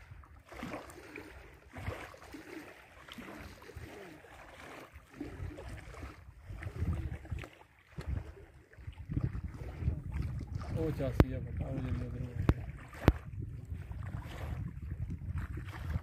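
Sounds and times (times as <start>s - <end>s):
wind gusting on microphone: 5.2s - 16.0s.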